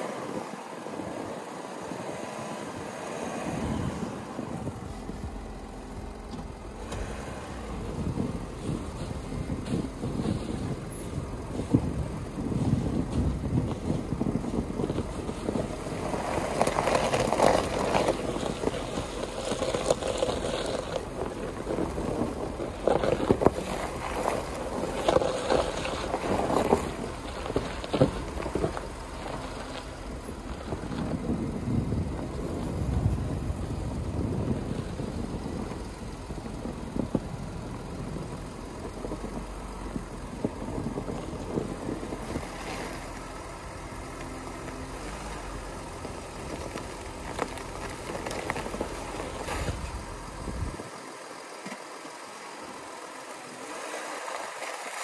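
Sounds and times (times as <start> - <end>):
low engine rumble: 0.0 - 55.0
tyres crunching over snow: 0.0 - 55.0
wind: 0.0 - 55.0.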